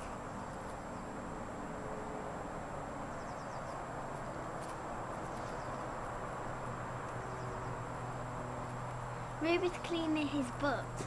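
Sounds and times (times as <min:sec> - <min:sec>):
outdoor background hiss: 0:00.0 - 0:11.0
faint bird chirps: 0:05.2 - 0:06.0.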